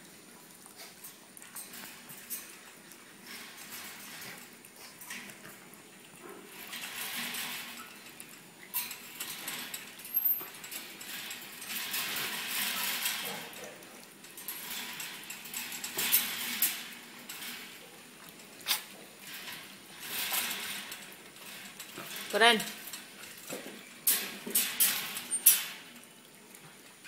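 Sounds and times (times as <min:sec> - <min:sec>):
animals scuffling in wire cage: 0:00.0 - 0:27.0
metallic clinks of cage: 0:00.8 - 0:05.6, 0:06.2 - 0:26.2.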